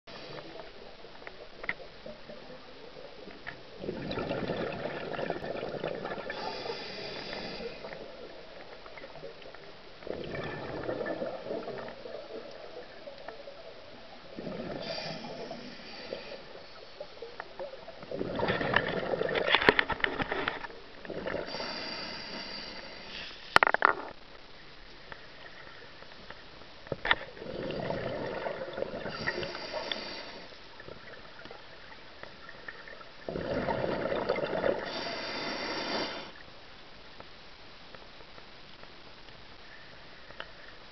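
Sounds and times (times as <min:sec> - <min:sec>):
exhaled bubbles underwater: 0:00.1 - 0:20.2, 0:21.0 - 0:21.9, 0:27.3 - 0:35.8
regulator breath hiss: 0:06.3 - 0:08.0, 0:14.8 - 0:16.8, 0:21.5 - 0:23.6, 0:29.1 - 0:30.6, 0:34.8 - 0:36.4.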